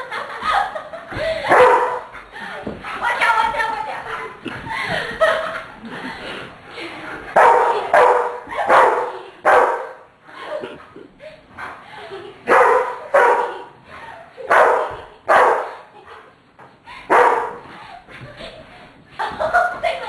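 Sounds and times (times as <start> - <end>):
dog barking: 1.5 - 2.1, 7.4 - 10.0, 12.5 - 13.6, 14.5 - 15.8, 17.1 - 17.6.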